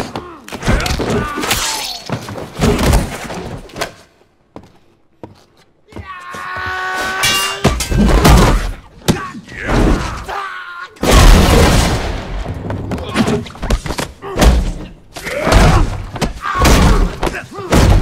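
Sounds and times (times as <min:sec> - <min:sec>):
grunting shouts: 0:05.9 - 0:11.0, 0:15.2 - 0:18.0.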